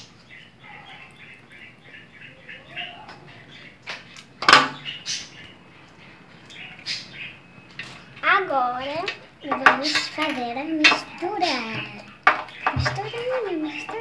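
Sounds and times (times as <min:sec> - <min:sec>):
plastic bottles knocking on glass: 0:11.7 - 0:14.0.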